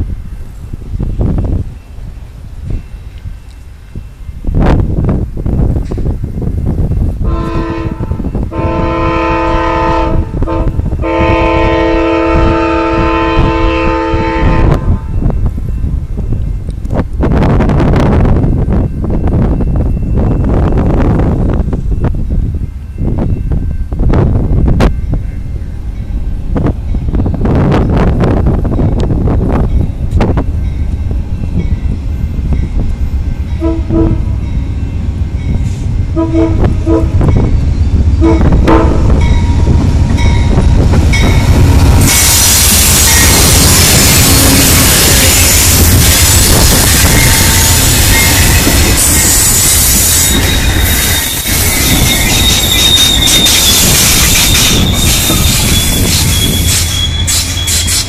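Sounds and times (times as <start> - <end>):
train horn blasts: 7.2 - 15.2, 33.5 - 37.5, 38.1 - 39.8, 40.5 - 58.0.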